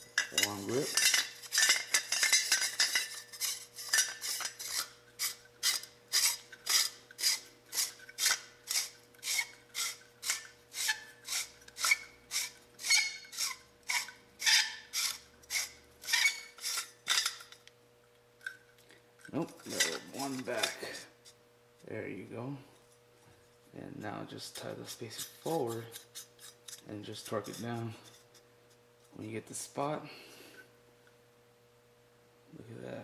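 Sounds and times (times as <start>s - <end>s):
metal threads rasping: 0.0s - 17.6s, 19.2s - 21.4s, 24.0s - 28.8s.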